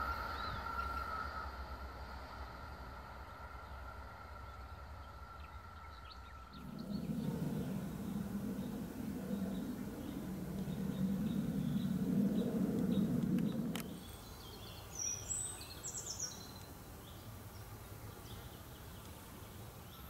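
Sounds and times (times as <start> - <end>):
low hum: 6.5 - 14.9
faint insect ticking: 6.6 - 14.8
bird chirps: 6.6 - 17.2.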